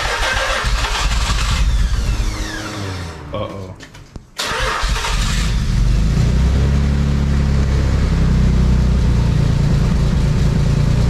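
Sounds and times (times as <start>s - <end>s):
car engine idling: 5.0s - 11.0s.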